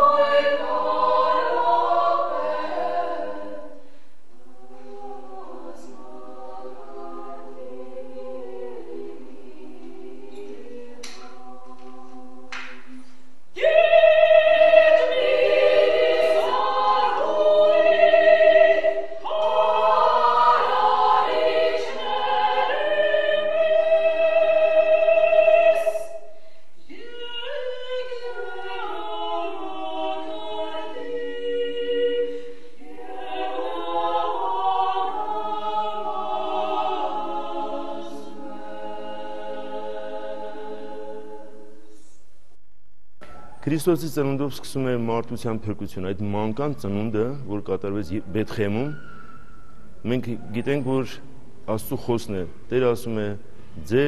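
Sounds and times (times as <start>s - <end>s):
women's choir singing a cappella: 0.0s - 41.9s.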